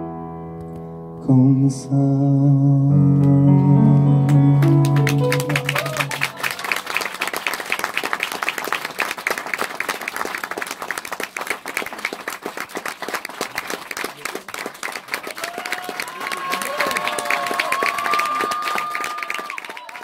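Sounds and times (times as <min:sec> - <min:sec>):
audience applauding: 0:04.3 - 0:20.0.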